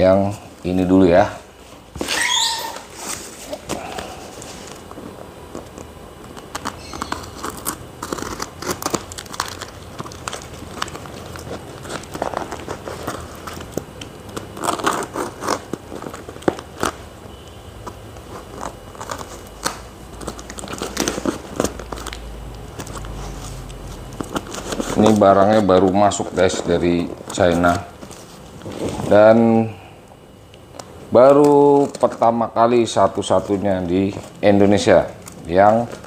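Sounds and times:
box cutter slicing packing tape: 0:14.4 - 0:16.9.

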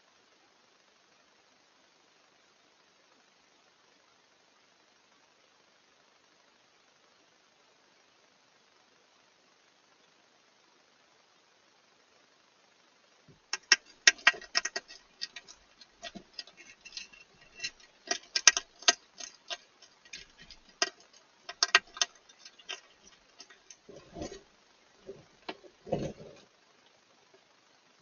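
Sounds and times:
hedgehog crunching food pellets: 0:13.5 - 0:26.5.

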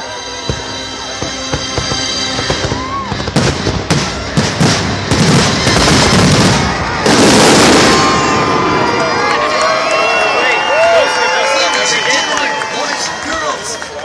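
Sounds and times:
fireworks bangs: 0:00.4 - 0:09.7.

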